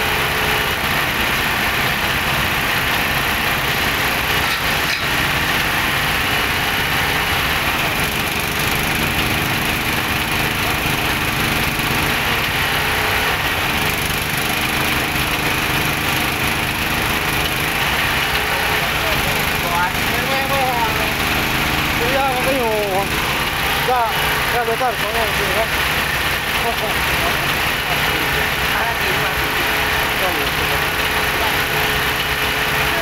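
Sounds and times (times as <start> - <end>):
small stationary engine running: 0.0 - 33.0.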